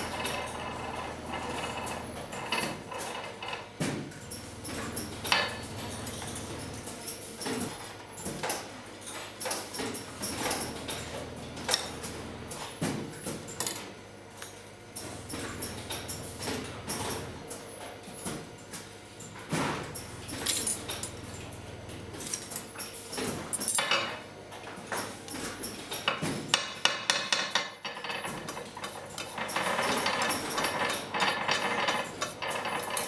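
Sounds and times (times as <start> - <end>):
tools clicking on wooden workbench: 25.9 - 33.0.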